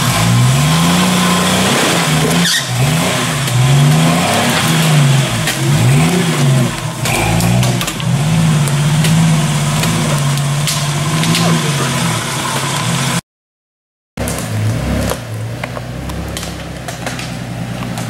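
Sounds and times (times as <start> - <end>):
engine revving up and down: 0.0 - 13.2, 14.2 - 18.0.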